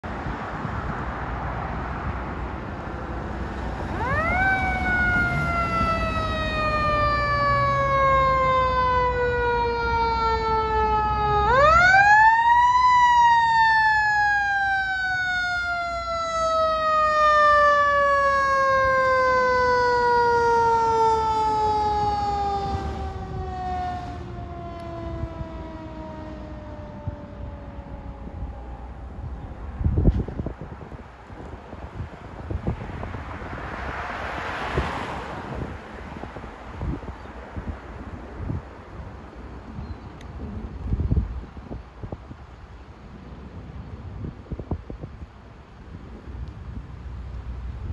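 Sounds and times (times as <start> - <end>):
fire engine siren wailing: 2.8 - 30.9.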